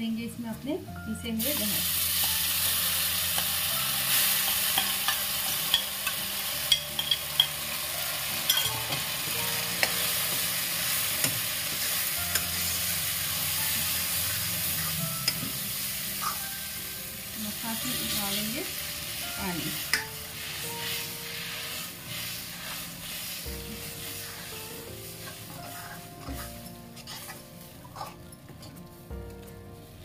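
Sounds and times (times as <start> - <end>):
paste sizzling in hot ghee: 1.4 - 28.2
ladle stirring and scraping: 20.8 - 29.0.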